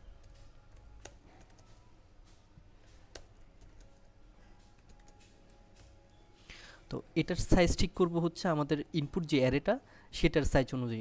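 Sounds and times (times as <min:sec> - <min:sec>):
typing on computer keyboard: 0:00.2 - 0:01.9, 0:03.1 - 0:06.1.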